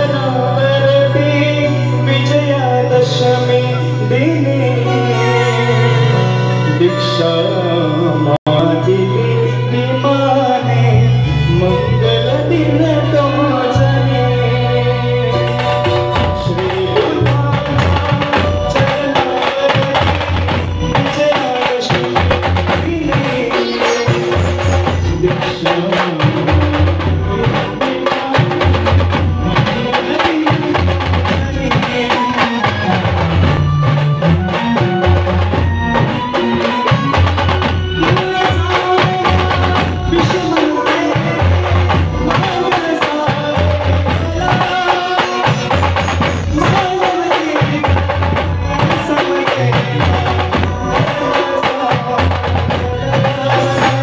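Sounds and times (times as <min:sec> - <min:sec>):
brass band melody: 0:00.0 - 0:54.0
drum beat with cymbals: 0:15.4 - 0:54.0.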